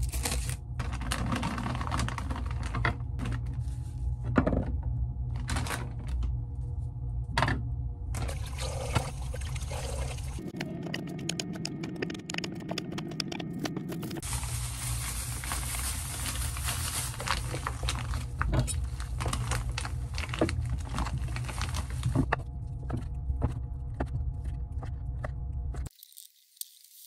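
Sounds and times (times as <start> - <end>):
plastic bag crinkling: 0.0 - 3.8, 14.2 - 22.3
steady low hum: 0.0 - 25.9.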